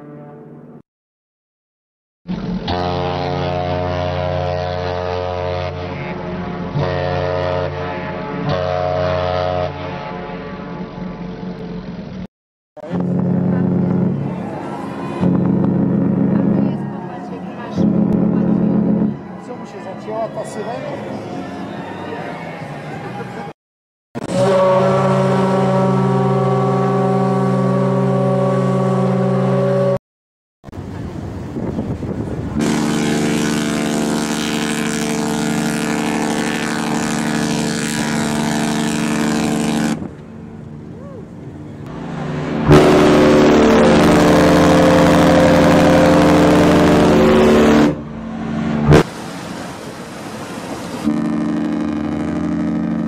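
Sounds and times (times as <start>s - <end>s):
ship horn blasts: 2.3s - 11.8s, 12.8s - 23.5s, 24.2s - 30.0s, 32.6s - 49.6s, 50.6s - 53.0s
outdoor noise: 2.3s - 23.6s, 30.6s - 53.0s
ship's whistle chord: 2.6s - 11.0s, 13.0s - 23.5s, 24.2s - 30.0s, 32.6s - 40.0s, 41.9s - 49.0s, 51.0s - 53.0s.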